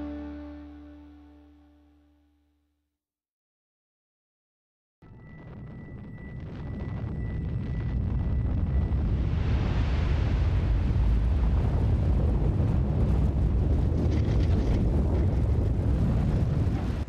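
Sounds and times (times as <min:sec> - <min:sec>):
volcanic eruption rumble: 0:05.2 - 0:17.0.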